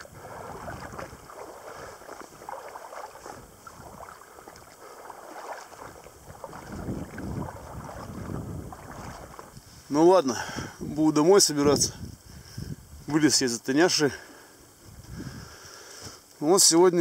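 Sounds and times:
water sloshing around waders: 0.0s - 10.7s.

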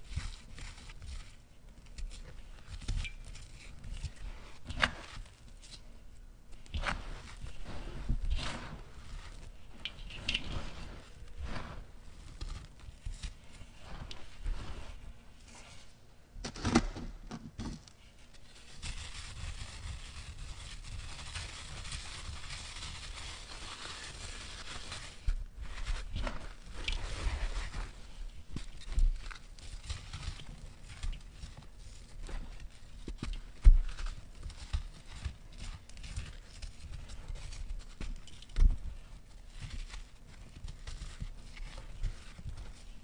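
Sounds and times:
trickling grit: 6.6s - 15.9s.

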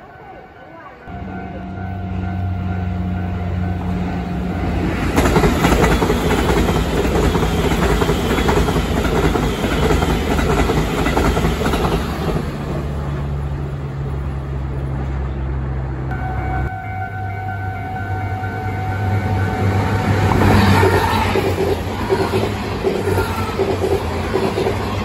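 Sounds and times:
train passing with hum: 0.0s - 25.0s
wheels clacking over rail joints: 3.7s - 13.3s.

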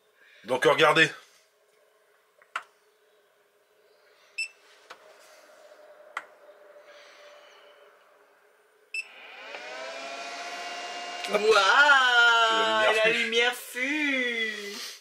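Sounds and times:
rising electronic hum: 4.9s - 12.9s.

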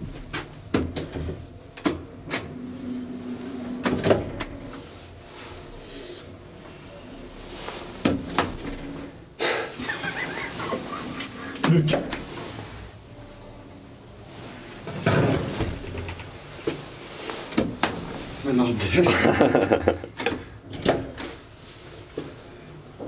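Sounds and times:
loud elevator door noise: 0.0s - 5.1s, 7.9s - 9.2s, 14.8s - 16.5s
low hum: 1.2s - 14.8s.

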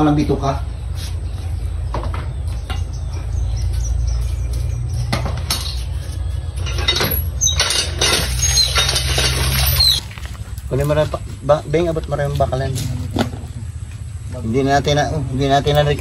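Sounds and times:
short squeaks: 6.7s - 10.2s.

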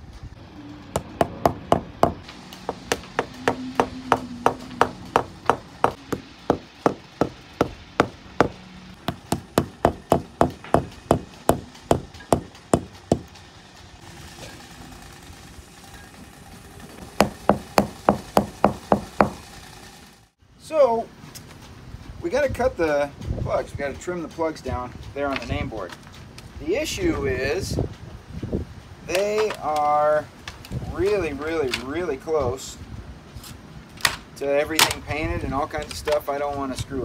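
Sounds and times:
wooden mallet knocking wood: 1.0s - 13.3s, 17.2s - 19.4s.

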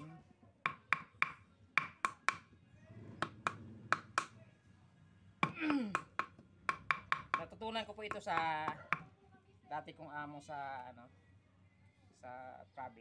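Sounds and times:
knife chopping on wooden block: 0.7s - 2.5s, 3.2s - 4.3s, 5.4s - 9.1s.

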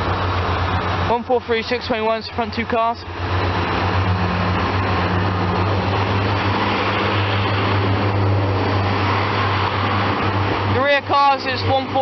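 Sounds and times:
diesel train engine humming: 0.0s - 12.0s
train wheels rumbling on track: 0.0s - 12.0s.

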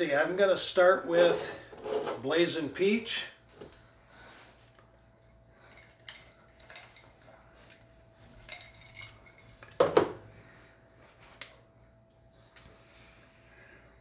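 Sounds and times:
glass bottle clicks and rustles: 8.4s - 9.9s.

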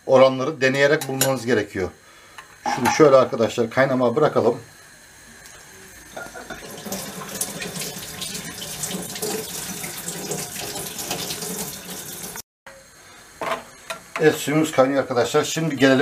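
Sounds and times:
broth boiling in a pot: 4.7s - 12.4s.

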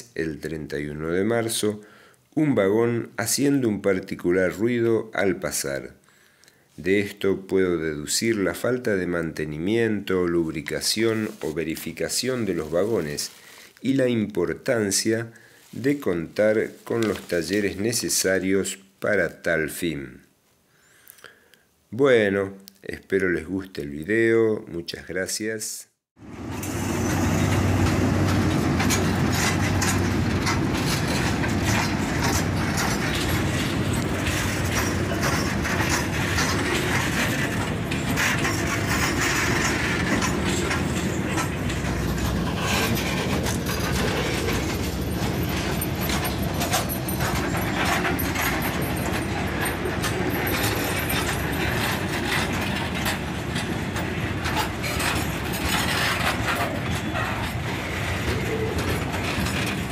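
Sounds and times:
freight train wagons rumbling: 10.4s - 13.6s, 26.2s - 59.9s
wheels clacking on rail joints: 10.6s - 13.6s, 16.3s - 17.8s, 26.2s - 59.9s.

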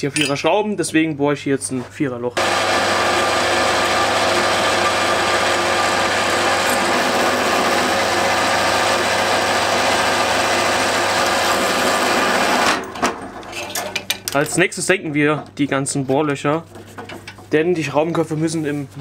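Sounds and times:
drill bit cutting steel: 2.4s - 12.8s
drill press motor running: 2.4s - 12.9s.

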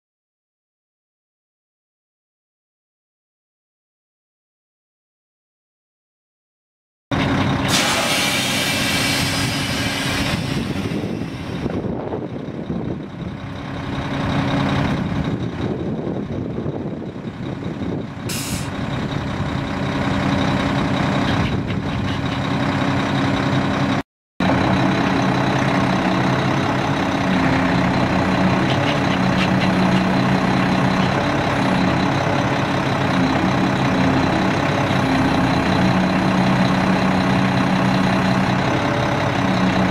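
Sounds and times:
diesel truck engine idling: 7.1s - 39.9s
compressed air hiss: 7.7s - 10.8s.

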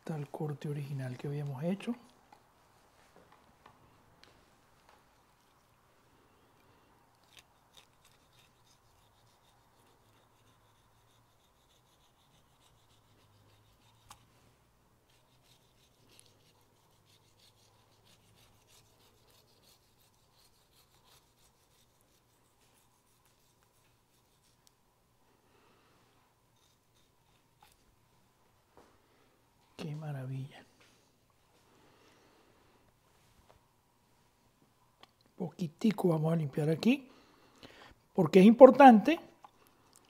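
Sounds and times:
knife scraping and slicing ham: 7.2s - 14.3s, 15.1s - 22.4s.

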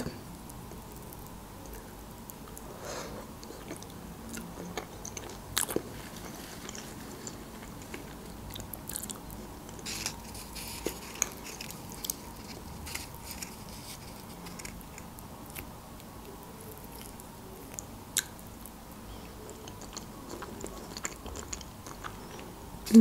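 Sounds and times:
chewing soft food: 0.0s - 23.0s.

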